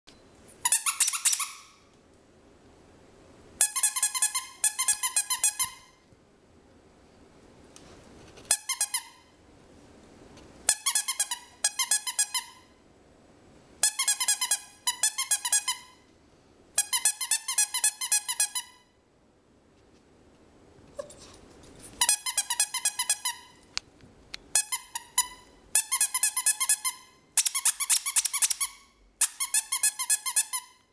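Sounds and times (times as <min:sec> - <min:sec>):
squeaky dog toy squeaking: 0:00.6 - 0:01.8, 0:03.6 - 0:06.0, 0:08.5 - 0:09.3, 0:10.7 - 0:12.7, 0:13.8 - 0:16.0, 0:16.8 - 0:18.9, 0:22.0 - 0:23.6, 0:24.5 - 0:30.9.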